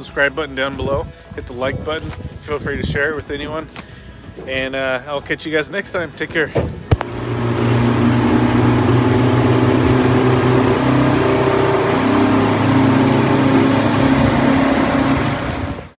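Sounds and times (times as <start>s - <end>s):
wind: 0.0s - 16.0s
boat engine running: 6.9s - 16.0s
rushing water: 7.0s - 16.0s.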